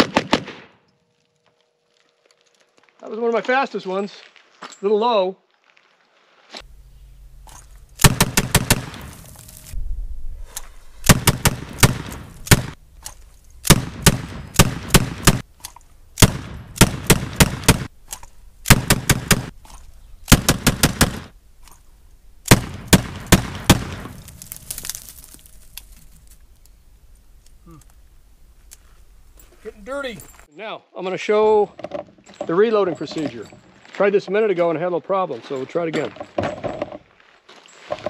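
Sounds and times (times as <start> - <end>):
rapid revolver shots: 0.0 - 0.7, 8.0 - 9.2, 11.0 - 12.8, 13.6 - 15.5, 16.2 - 17.9, 18.6 - 19.6, 20.3 - 21.3, 22.4 - 24.1.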